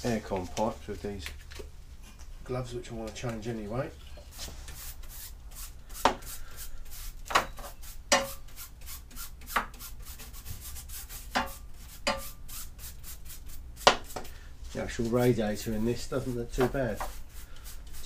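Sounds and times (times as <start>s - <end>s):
hand brushing radiator fins: 4.4s - 14.2s, 14.8s - 18.0s.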